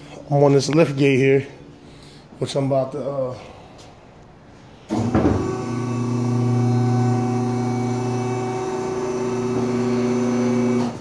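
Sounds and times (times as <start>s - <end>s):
hydraulic pump motor humming: 4.9s - 11.0s.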